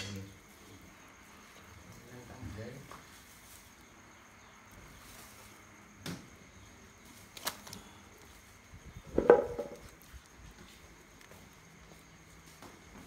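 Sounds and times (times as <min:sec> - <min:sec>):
meat handling on plastic tarp: 0:07.0 - 0:08.4.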